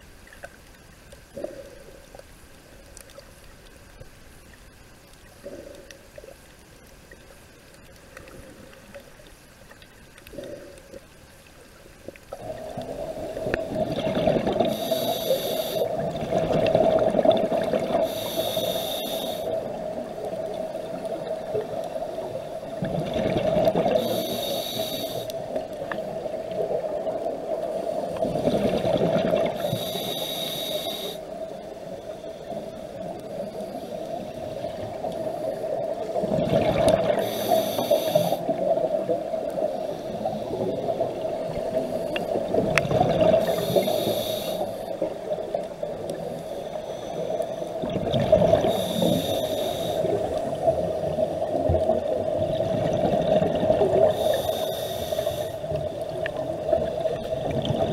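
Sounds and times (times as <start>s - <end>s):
exhaled bubbles rushing: 12.4s - 14.9s, 15.9s - 18.1s, 22.7s - 24.0s, 28.1s - 29.7s, 36.1s - 37.2s, 40.7s - 43.7s, 47.8s - 49.0s, 50.0s - 54.2s, 55.8s - 57.9s
regulator hissing inhale: 14.6s - 16.0s, 17.9s - 19.7s, 23.9s - 25.6s, 29.5s - 36.0s, 37.0s - 38.6s, 39.6s - 41.0s, 43.2s - 45.4s, 46.1s - 47.8s, 48.6s - 50.6s, 53.9s - 56.0s.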